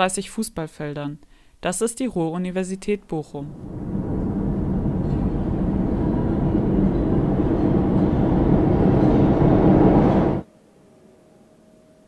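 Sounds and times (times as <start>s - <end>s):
train wheels rumbling on rail: 3.5s - 10.4s.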